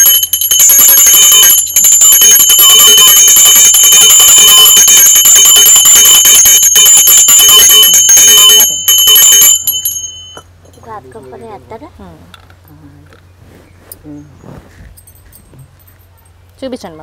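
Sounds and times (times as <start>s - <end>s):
brass hand bell ringing: 0.0s - 10.6s.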